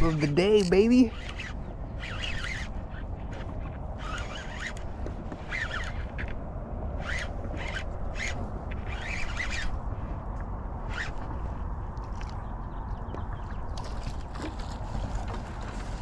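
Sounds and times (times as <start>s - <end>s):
fishing reel cranking: 0.0s - 6.4s, 7.0s - 9.8s
wind rumble on microphone: 0.0s - 16.0s.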